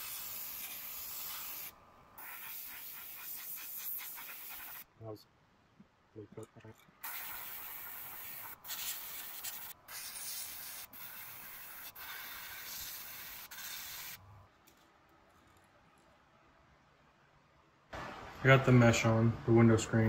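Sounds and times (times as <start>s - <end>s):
airbrush spraying hiss: 0.0s - 4.9s, 7.0s - 14.2s.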